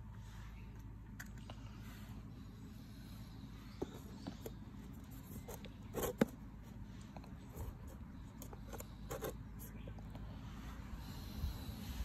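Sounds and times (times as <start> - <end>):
faint steady background noise: 0.0 - 12.0.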